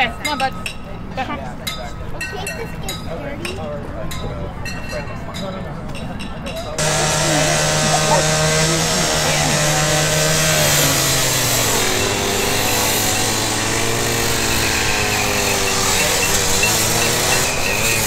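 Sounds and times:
cut-off saw cutting steel: 6.8s - 18.0s.

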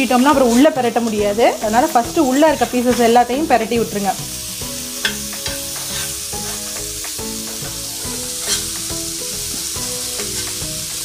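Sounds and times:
background music: 0.0s - 11.0s
chicken sizzling on griddle: 0.0s - 11.0s
spatula scraping griddle: 2.1s - 3.2s, 4.7s - 11.0s.

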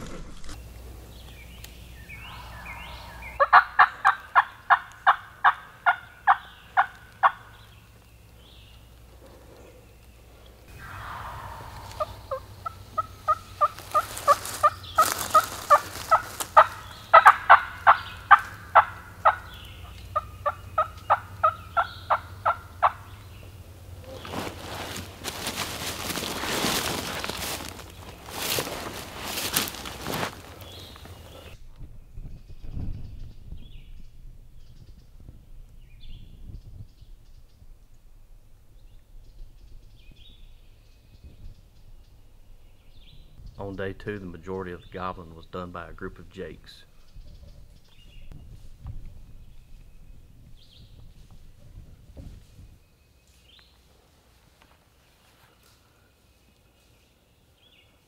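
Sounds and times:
steady low rumble: 0.1s - 52.8s
songbird singing: 0.6s - 58.0s
turkey yelps: 2.1s - 7.6s, 10.7s - 23.1s.

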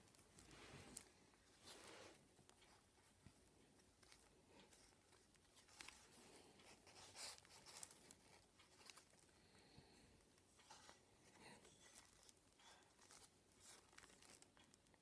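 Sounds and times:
paper rustling and crinkling: 0.0s - 9.4s, 10.6s - 15.0s.

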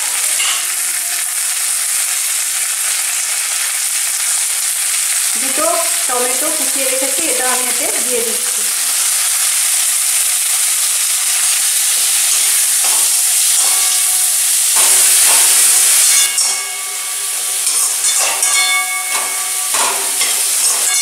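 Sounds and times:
food sizzling in hot oil: 0.0s - 21.0s
metal spatula scraping pan: 12.2s - 21.0s.

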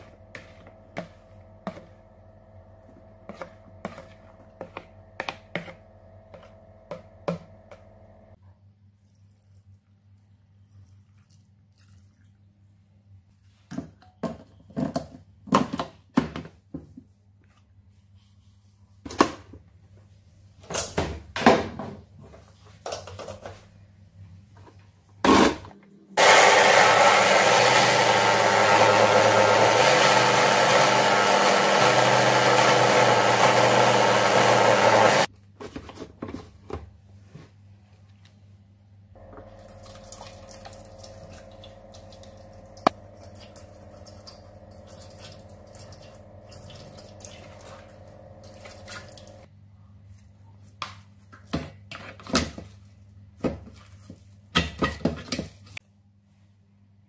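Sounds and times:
electric blender grinding: 26.2s - 35.3s, 40.8s - 49.5s.

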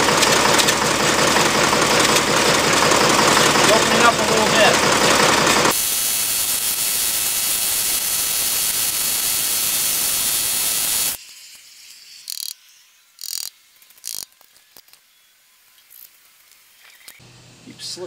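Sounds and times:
mechanical ratcheting clatter: 12.2s - 12.6s, 13.2s - 14.9s.

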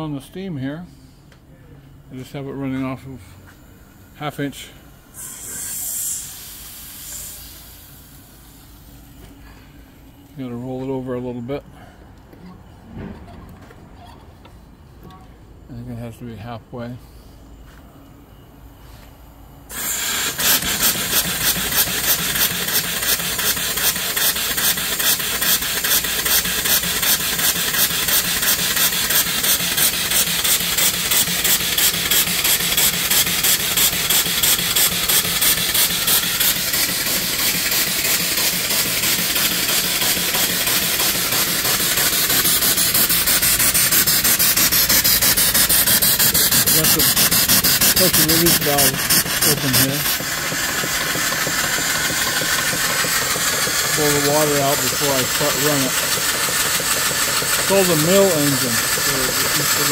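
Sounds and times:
steam engine chuffing: 3.5s - 11.1s, 19.7s - 59.9s.

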